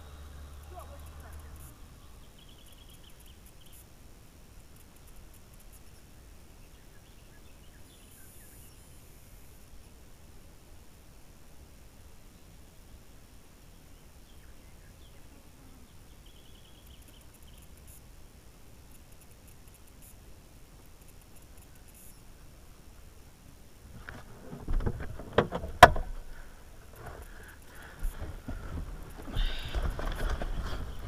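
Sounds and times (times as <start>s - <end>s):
clunks and knocks on vehicle: 24.1s - 26.2s.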